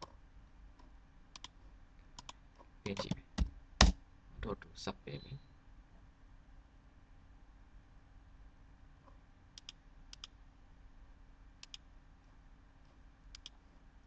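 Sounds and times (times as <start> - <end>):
faint steady hum: 0.0 - 14.0
computer mouse clicking: 1.3 - 1.6, 2.2 - 4.0, 9.6 - 10.4, 11.6 - 11.8, 13.3 - 13.6.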